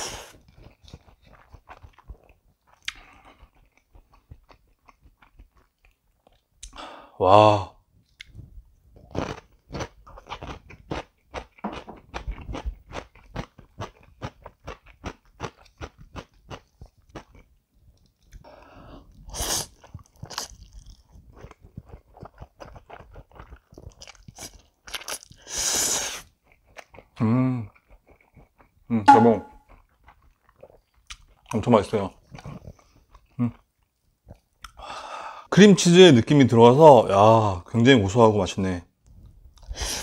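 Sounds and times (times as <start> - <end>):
slurping noodles: 0.0 - 2.2, 19.2 - 20.6, 21.2 - 27.2, 39.6 - 40.0
person chewing with lip-smacking: 0.0 - 6.8, 8.0 - 29.0, 29.6 - 31.6, 32.2 - 34.8.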